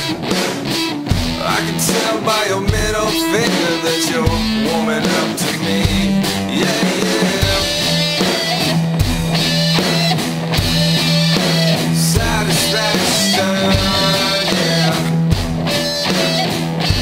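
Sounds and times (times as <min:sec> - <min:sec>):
drum kit beat: 0:00.0 - 0:17.0
electric guitar: 0:00.0 - 0:17.0.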